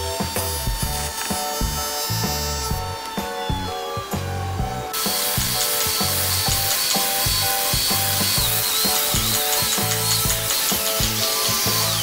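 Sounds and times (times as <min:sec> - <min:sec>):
background music with steady beat: 0:00.0 - 0:12.0
electric belt sander running: 0:00.0 - 0:12.0.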